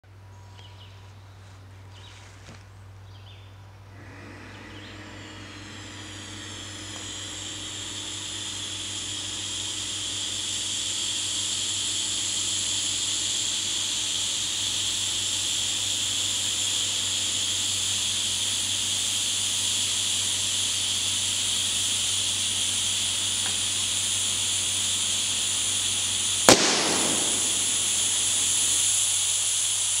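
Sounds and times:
compressed air hissing: 4.0 - 30.0
balloon bursting with a bang: 26.4 - 28.7.

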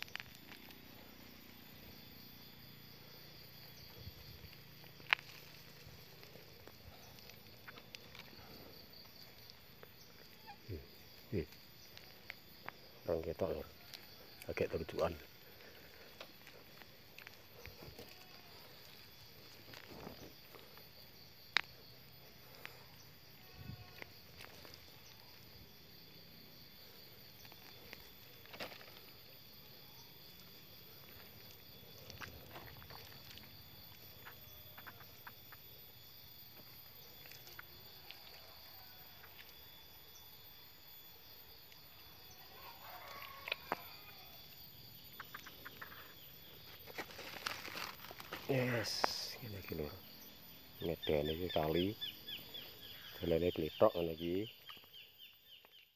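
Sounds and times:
hands digging in soil and leaves: 3.4 - 10.5, 11.4 - 21.7, 27.0 - 29.3, 46.6 - 49.9
faint animal call: 10.0 - 11.6, 17.6 - 20.1, 22.4 - 25.6, 30.8 - 36.0, 41.9 - 46.4.

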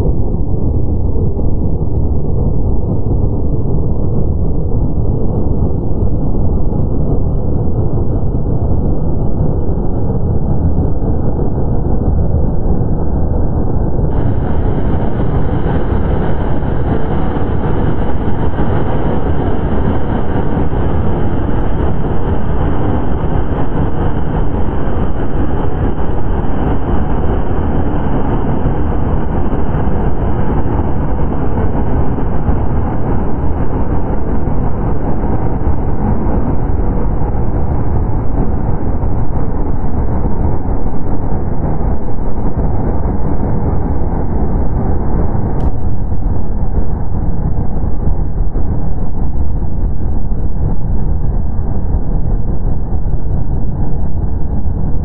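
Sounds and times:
distorted electronic noise: 14.1 - 24.5.

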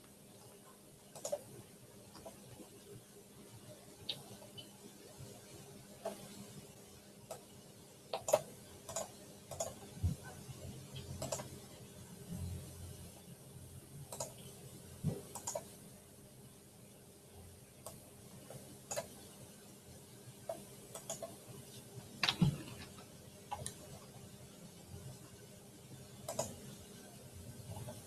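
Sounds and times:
faint steady hum: 0.0 - 28.0
keyboard and mouse clicks: 1.1 - 1.5, 2.1 - 2.4, 8.1 - 9.8, 11.0 - 11.5, 14.1 - 14.4, 15.1 - 15.8, 17.8 - 19.2, 20.4 - 21.4, 22.2 - 23.9, 26.2 - 26.7.

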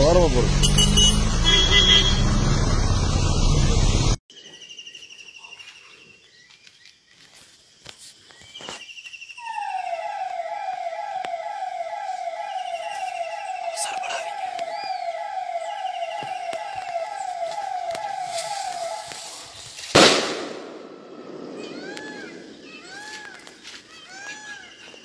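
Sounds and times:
vehicle road noise: 0.0 - 4.2, 10.2 - 20.0
siren-like falling tone: 9.4 - 19.9, 20.6 - 23.4
person speaking: 12.7 - 15.0.

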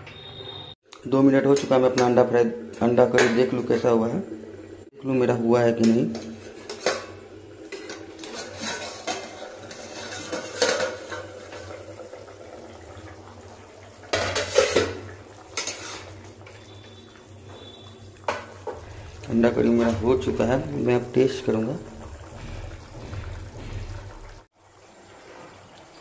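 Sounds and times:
metal lid clattering on pan: 6.6 - 11.7, 14.1 - 15.0
spatula scraping in pan: 7.7 - 11.3, 15.5 - 17.0.

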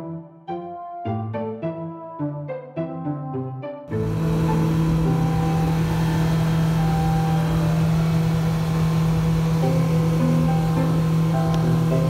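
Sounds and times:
outboard motor running: 3.9 - 12.0
wind and water rushing: 3.9 - 12.0.

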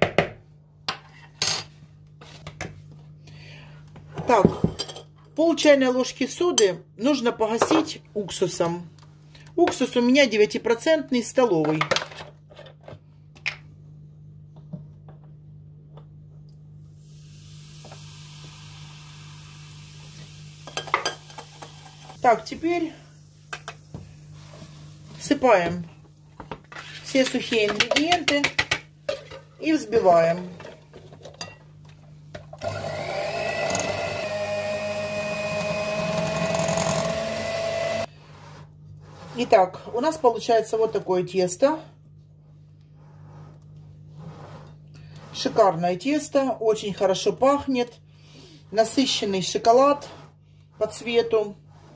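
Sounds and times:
baking soda fizzing: 16.9 - 22.1
electric hand mixer whining: 32.6 - 38.1.

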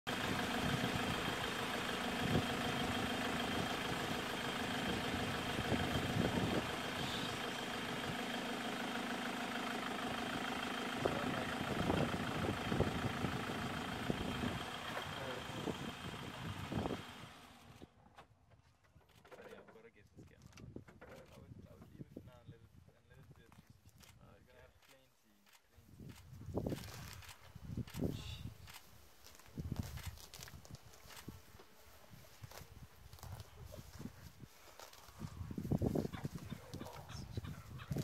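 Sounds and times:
vehicle engine idling: 0.1 - 18.0, 26.8 - 38.0.

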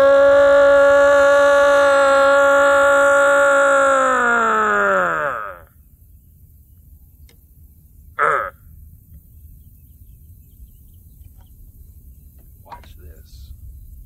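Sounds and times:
man whooping: 0.0 - 5.6
man howling through cupped hand: 0.0 - 5.7
wind rumble: 0.0 - 14.0.

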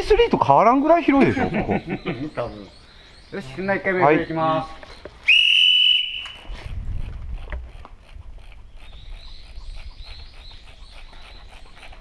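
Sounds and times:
high-pitched animal chirping: 8.0 - 12.0.

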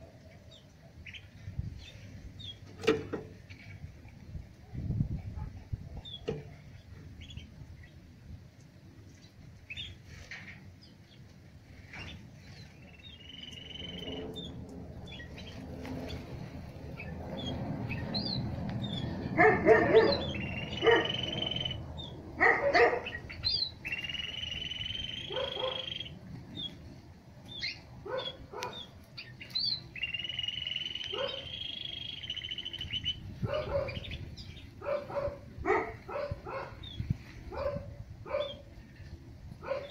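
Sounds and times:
birds calling sharp notes: 11.9 - 26.8, 27.5 - 37.3.

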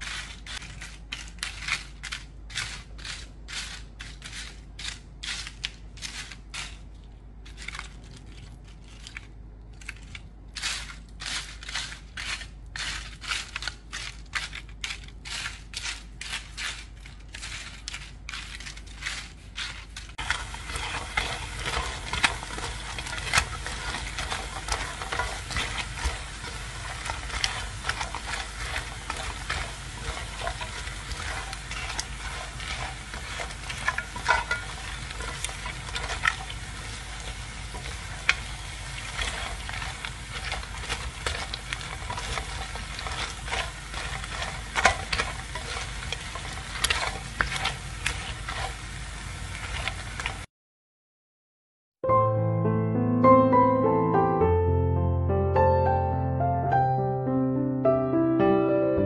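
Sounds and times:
fried fish crunching and crackling: 0.0 - 50.5
frying sizzle in a pan: 10.6 - 50.5.

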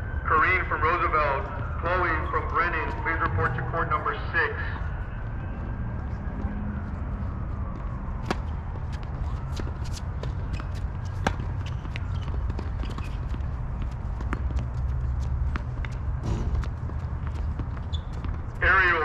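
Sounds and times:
low rumble: 16.1 - 17.3.

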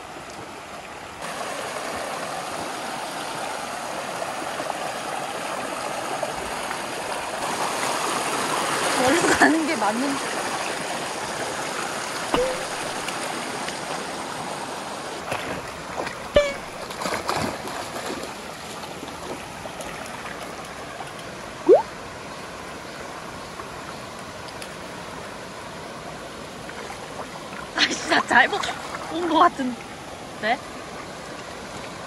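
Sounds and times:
stream running over rocks: 0.0 - 32.0
dogs splashing through water: 15.2 - 21.0.

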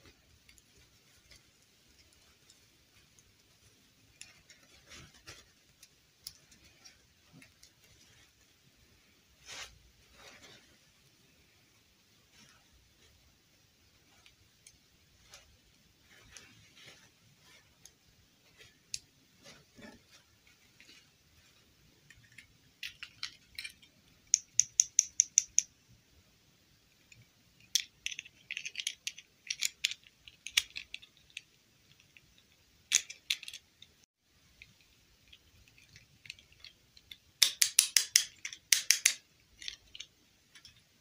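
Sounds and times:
faint plastic rustling: 0.0 - 24.2.

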